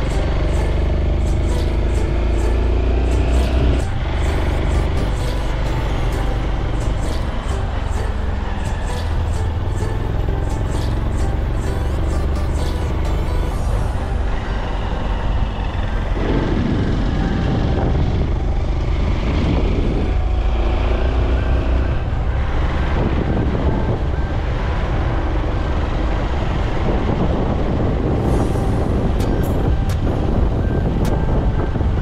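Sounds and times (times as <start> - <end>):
motorcycle engine running: 0.0 - 20.8.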